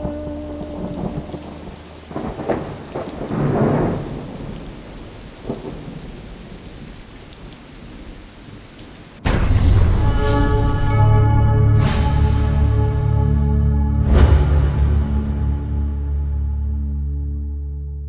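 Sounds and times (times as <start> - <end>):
music: 0.0 - 2.2, 9.2 - 18.0
rain falling: 0.0 - 10.5
thunder rumbling: 0.0 - 10.9.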